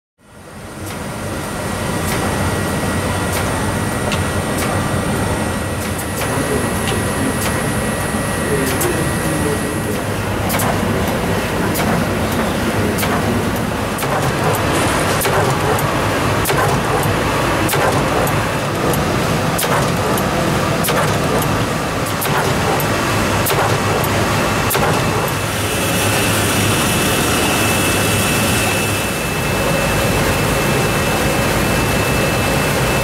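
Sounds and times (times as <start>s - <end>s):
printing press mechanical drone: 0.2s - 33.0s
machine clicks and knocks: 3.3s - 4.8s, 9.9s - 25.4s.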